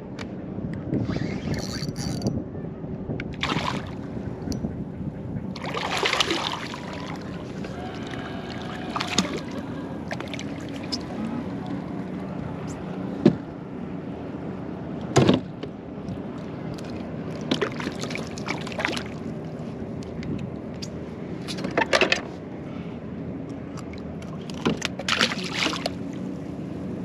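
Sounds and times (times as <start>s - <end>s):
water lapping against hull: 3.3s - 13.5s, 16.1s - 21.8s, 23.6s - 26.7s
splashes and knocks of gear: 5.6s - 7.2s, 16.8s - 19.2s, 24.3s - 26.0s.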